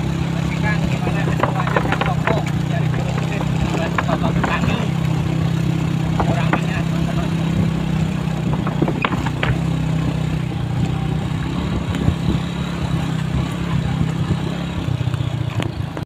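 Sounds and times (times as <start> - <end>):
vehicle engine running: 0.0 - 16.0
clicks and rattles: 0.9 - 11.0.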